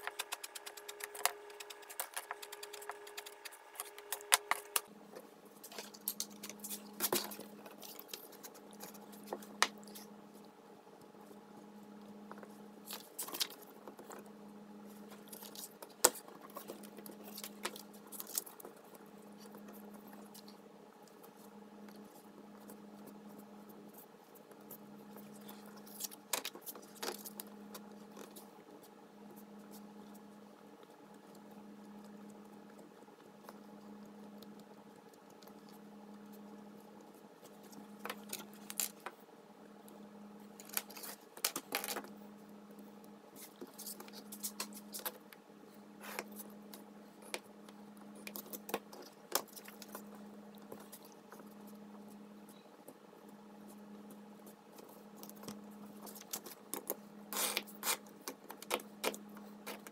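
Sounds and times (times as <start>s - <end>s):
taps clicks and rustles: 0.0s - 10.0s
steady low hum: 0.0s - 59.9s.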